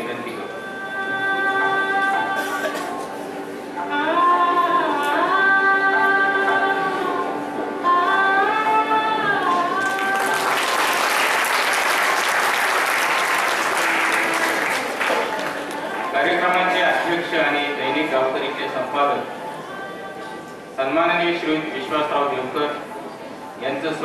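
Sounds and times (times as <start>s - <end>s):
audience applauding: 9.8s - 16.2s.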